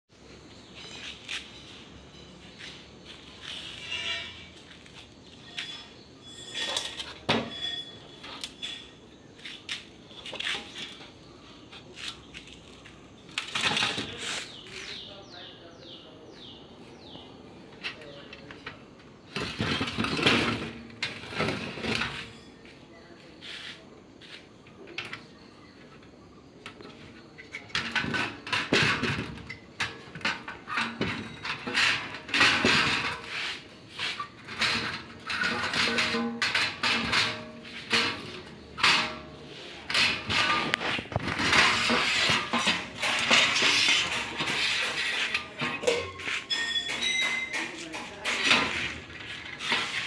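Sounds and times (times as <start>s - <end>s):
metal tubes clinking and rattling: 0.6s - 11.9s, 12.5s - 14.8s, 27.4s - 50.0s
steel rods clinking: 34.1s - 50.0s.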